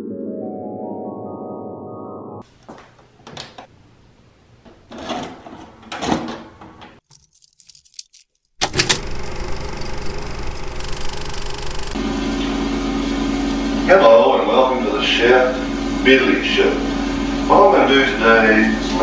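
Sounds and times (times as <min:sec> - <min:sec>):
video tape loading clunks: 0:08.6 - 0:12.0.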